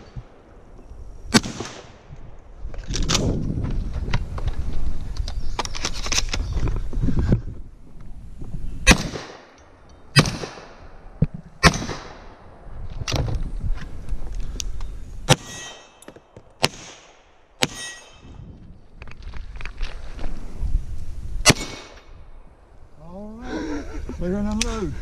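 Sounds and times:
gunshots: 1.3 - 2.0, 8.9 - 9.5, 10.1 - 10.8, 11.6 - 12.3, 15.3 - 18.3, 21.4 - 22.0
steel targets ringing: 17.6 - 18.2.

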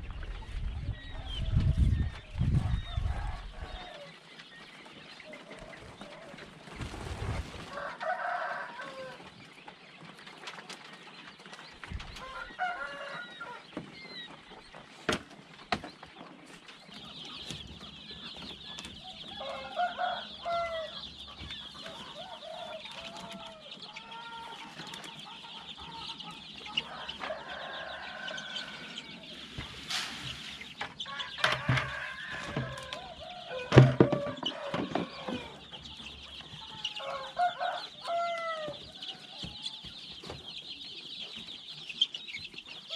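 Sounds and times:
chickens clucking: 0.0 - 42.9
wire mesh coop knocking: 30.8 - 35.5.

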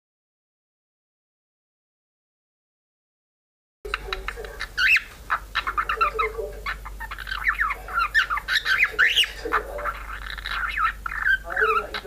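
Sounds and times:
budgerigar warbling: 3.9 - 12.0.

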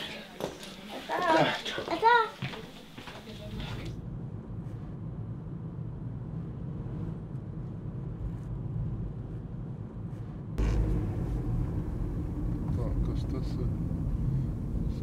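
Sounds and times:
car cabin rumble: 10.6 - 15.0.

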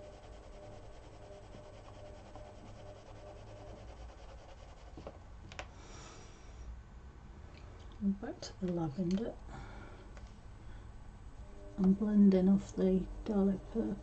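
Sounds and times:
pencil scratching on paper: 0.0 - 5.1.

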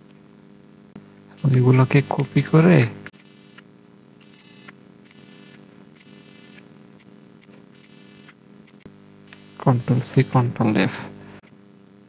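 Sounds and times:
electrical mains hum: 0.0 - 12.0
computer mouse clicks: 6.0 - 9.5.

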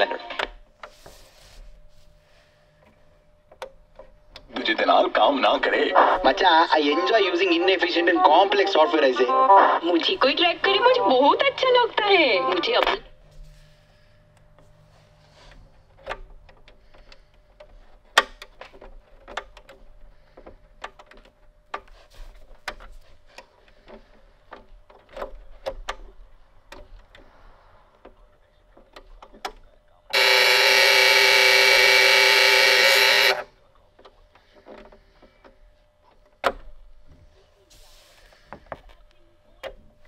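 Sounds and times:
alarm buzzer: 5.8 - 13.1, 30.1 - 33.5.

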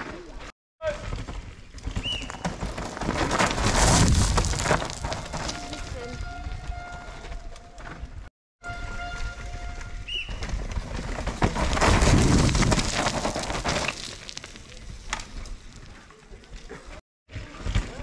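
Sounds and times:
mountain bike rushing past: 9.4 - 14.1.

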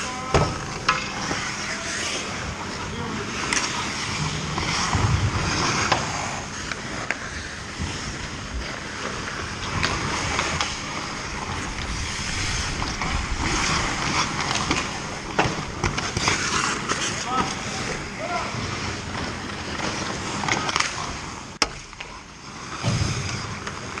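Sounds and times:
hockey sticks and puck clacking: 0.0 - 24.0
skate blades scraping ice: 0.0 - 24.0.

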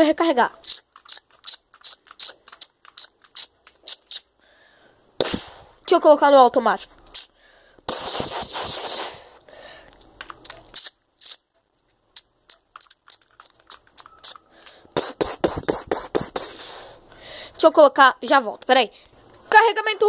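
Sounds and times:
plastic toy clicks: 0.5 - 4.3, 12.2 - 14.8.

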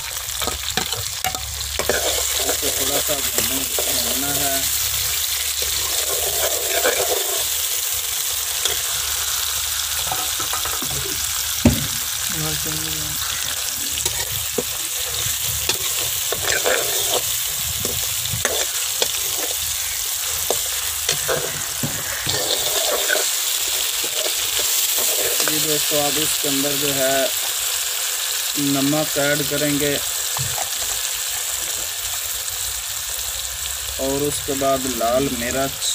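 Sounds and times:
vegetables sizzling in oil: 0.0 - 35.9
ladle scraping metal pan: 0.4 - 4.2, 5.6 - 7.6, 13.2 - 23.4.

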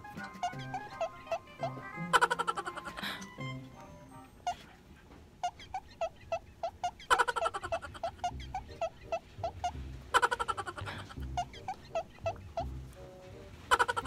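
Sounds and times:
short squeaky notes: 0.0 - 2.0, 2.6 - 4.8, 8.1 - 14.0.

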